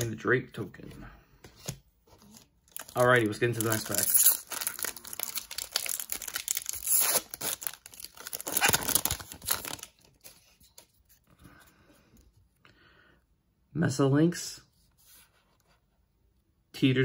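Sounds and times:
foil wrapper tearing and crinkling: 2.7s - 10.4s.

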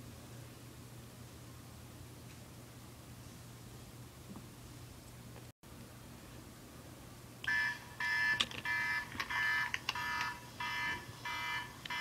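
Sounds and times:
electronic phone ringtone: 7.5s - 12.0s.

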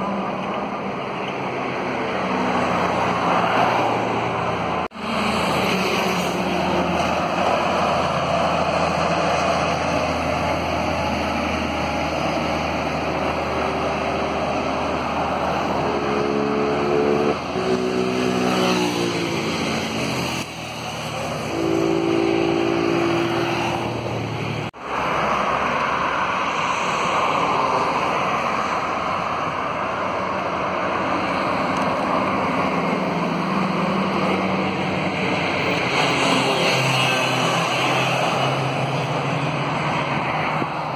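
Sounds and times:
truck engine hum: 0.0s - 18.4s
tyres rushing on road: 0.0s - 40.9s.

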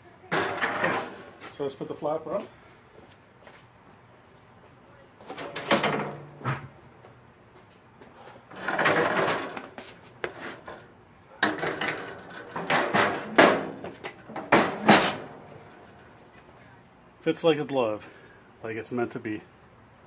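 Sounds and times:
metal knocks and scrapes: 11.4s - 16.1s.

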